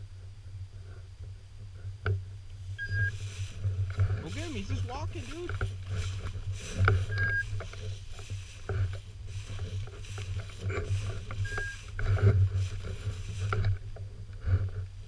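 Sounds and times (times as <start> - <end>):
low microphone rumble: 0.0 - 15.0
dry grass swishing: 2.6 - 15.0
short high electronic beeps: 2.8 - 3.2, 11.5 - 11.8.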